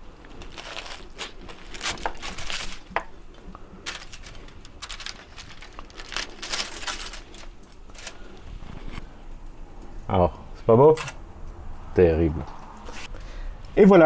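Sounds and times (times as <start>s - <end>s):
foil crinkling: 0.2s - 9.0s.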